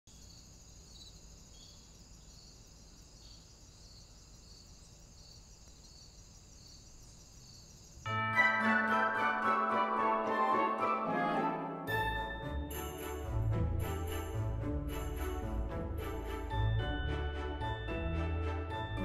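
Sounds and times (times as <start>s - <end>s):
insects chirping: 0.1s - 8.1s
orchestral music: 8.1s - 19.0s.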